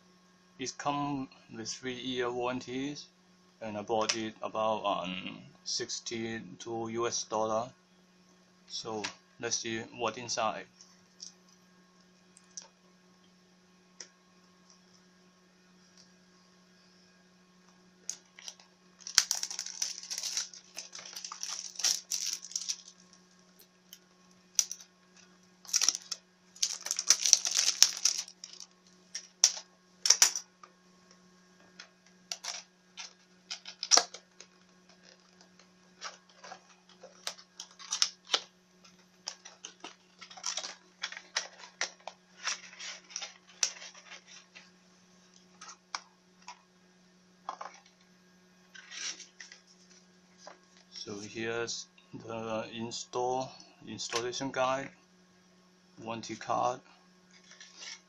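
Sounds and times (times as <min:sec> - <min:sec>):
low mains hum: 0:00.0 - 0:58.0
plastic wrap crinkling and tearing: 0:18.1 - 0:23.0, 0:24.6 - 0:24.8, 0:25.6 - 0:30.2, 0:32.3 - 0:38.4, 0:39.2 - 0:44.6.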